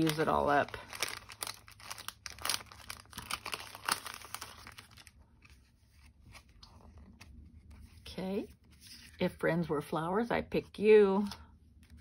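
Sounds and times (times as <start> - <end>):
cellophane crinkling: 0.0 - 5.6.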